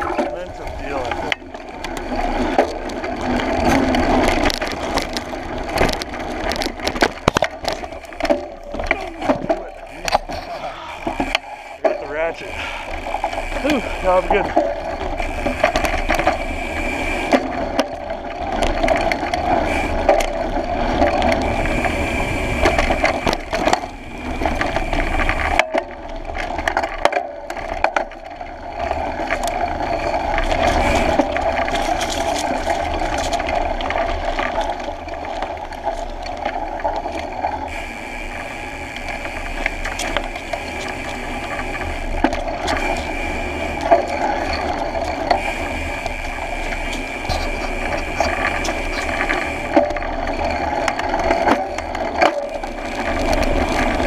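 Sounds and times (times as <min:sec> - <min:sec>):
bike knocks and rattles: 0:00.0 - 0:12.4.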